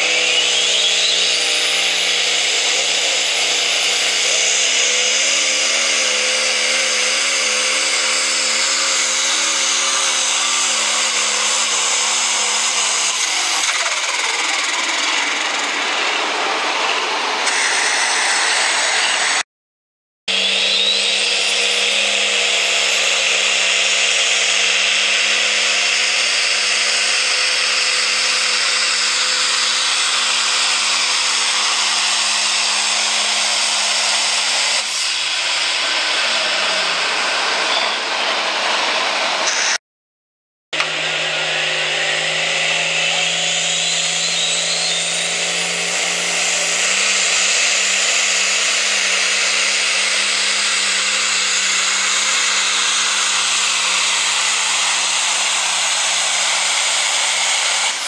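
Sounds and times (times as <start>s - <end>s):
high turbo whine: 0.0s - 19.5s, 20.3s - 39.8s, 40.8s - 58.0s
diesel tractor engine under load: 40.8s - 52.9s.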